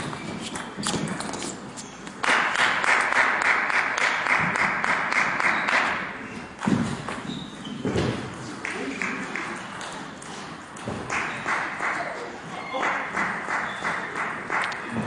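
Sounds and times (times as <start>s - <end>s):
applause and clapping: 2.2s - 6.0s, 8.6s - 9.9s, 11.0s - 15.0s.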